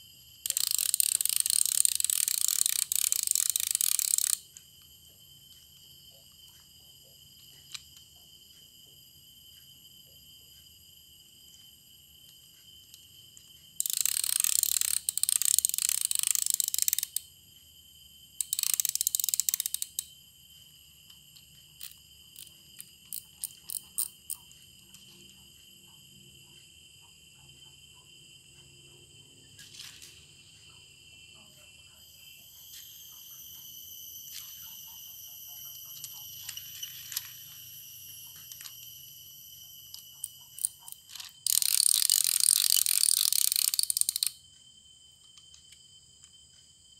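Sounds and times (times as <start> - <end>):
fishing reel drag ratcheting: 0.4 - 4.5, 13.8 - 17.3, 18.4 - 20.1, 23.1 - 24.3, 40.2 - 44.4.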